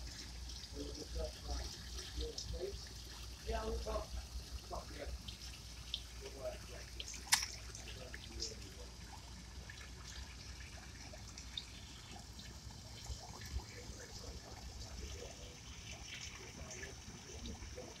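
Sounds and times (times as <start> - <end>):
fish splashing at water surface: 0.0 - 18.0
water trickling: 0.0 - 18.0.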